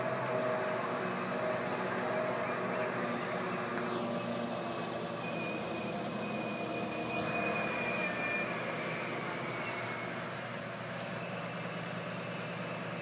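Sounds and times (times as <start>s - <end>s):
diesel engine running: 0.0s - 13.0s
thin high whine: 0.0s - 13.0s.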